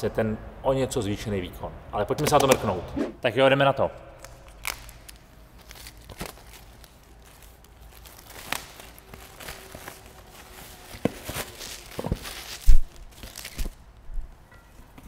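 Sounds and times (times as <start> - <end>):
plastic shrink wrap crinkling: 4.2 - 15.0.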